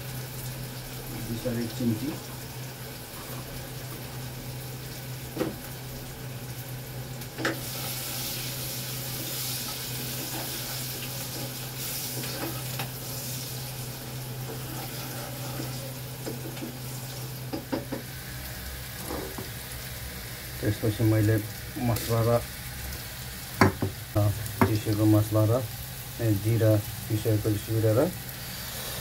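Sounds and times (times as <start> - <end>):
onions sizzling in hot oil: 0.0 - 29.0
wooden spatula knocking a pot: 23.6 - 24.0.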